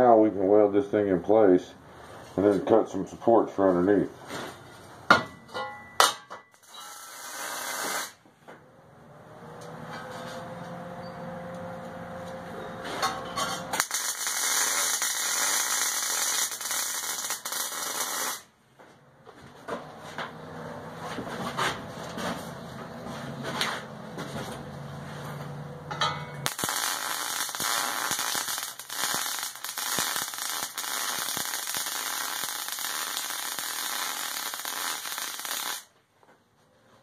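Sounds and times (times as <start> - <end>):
clicks and knocks of metal: 5.1 - 7.0, 12.9 - 13.9, 25.9 - 26.5
welding arc crackling hiss: 6.6 - 8.2, 13.8 - 18.5, 26.4 - 35.9.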